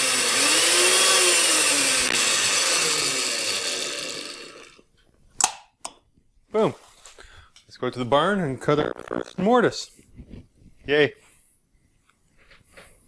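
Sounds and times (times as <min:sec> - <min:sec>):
power tool motor and chain running: 0:00.0 - 0:04.8.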